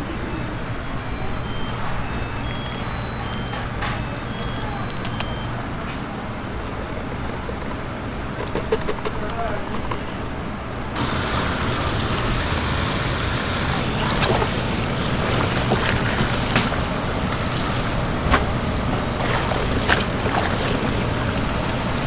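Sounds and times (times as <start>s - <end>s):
tap water running into basin: 11.0s - 22.0s
water splashes: 11.0s - 22.0s.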